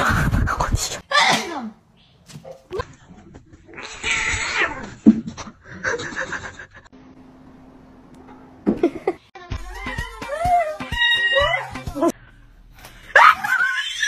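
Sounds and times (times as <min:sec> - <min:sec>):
cats meowing and yowling: 0:03.8 - 0:04.9, 0:09.7 - 0:12.0.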